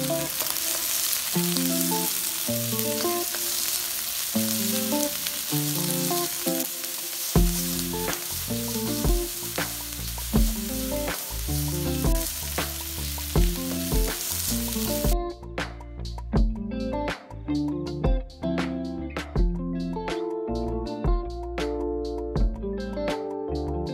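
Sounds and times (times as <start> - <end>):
food sizzling in hot oil: 0.0 - 15.2
background music: 0.0 - 23.9.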